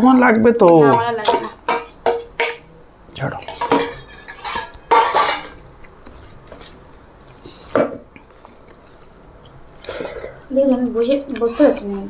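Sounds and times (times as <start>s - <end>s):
steel plates clattering and scraping: 3.8s - 5.6s.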